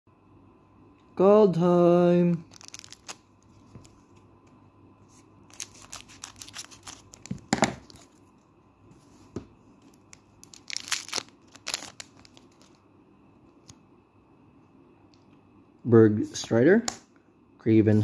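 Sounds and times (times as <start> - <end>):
foil wrapper crinkling and tearing: 2.4 - 3.9, 5.4 - 8.2, 9.8 - 12.8.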